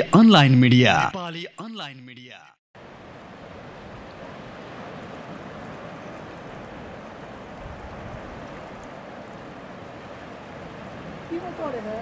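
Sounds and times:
ocean surf on beach: 2.8s - 12.0s.

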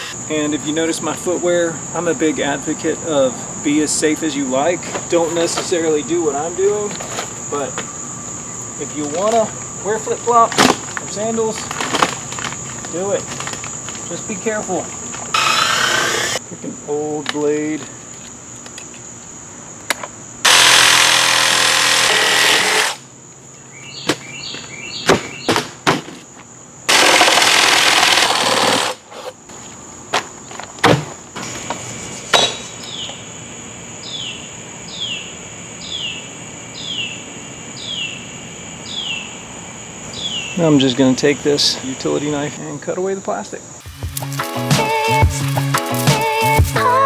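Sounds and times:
high insect buzz: 0.0s - 41.1s, 43.5s - 47.0s
power saw cutting wood: 15.3s - 16.4s, 20.4s - 23.0s, 26.9s - 29.0s.

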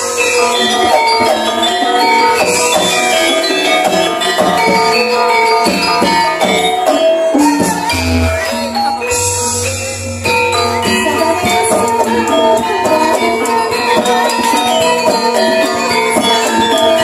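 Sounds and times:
gamelan ensemble playing: 0.0s - 17.0s
low booming tone: 7.8s - 8.6s.

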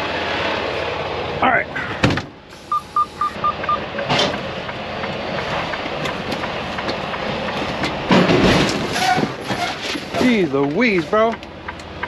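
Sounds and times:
diesel engine idling: 0.0s - 12.0s
truck door shutting: 1.9s - 2.8s
dashboard chime beeps: 2.7s - 4.1s.

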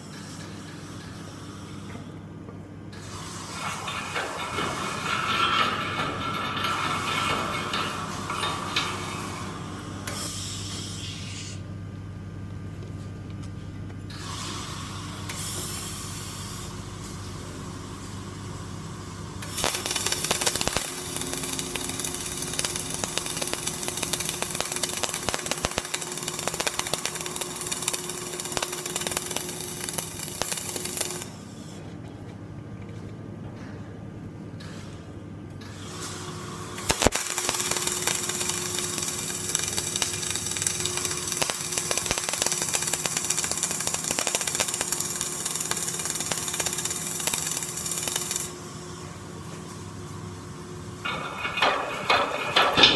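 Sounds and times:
welding arc crackling: 3.4s - 9.6s, 19.4s - 31.4s, 36.8s - 48.6s.

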